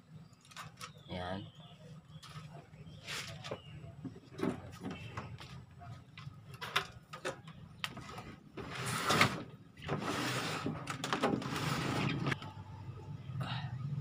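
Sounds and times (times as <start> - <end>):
plastic cabinet scraping and sliding: 8.0 - 12.4.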